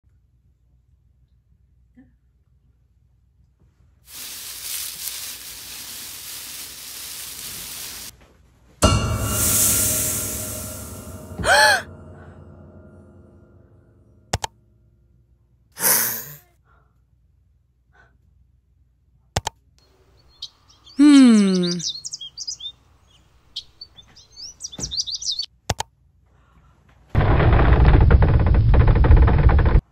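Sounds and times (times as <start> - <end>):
short hiss: 4.1 - 8.1, 9.2 - 11.2
falling pitched tone: 8.8 - 14.3
high bird chirps: 20.2 - 25.5.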